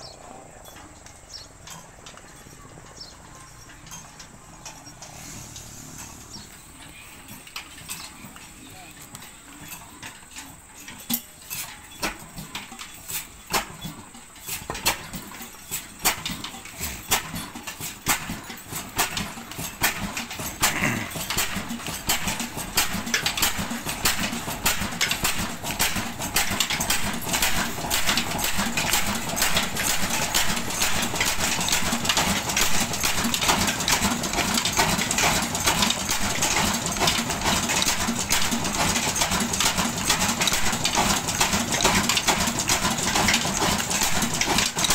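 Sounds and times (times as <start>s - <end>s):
diesel engine knocking and firing: 11.9s - 44.9s.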